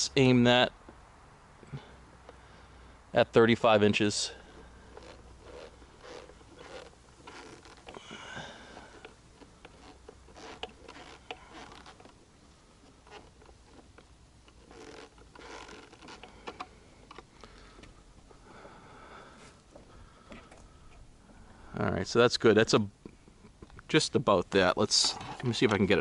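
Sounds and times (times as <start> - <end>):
plastic clicks and scrapes: 4.9 - 12.2, 12.8 - 17.9.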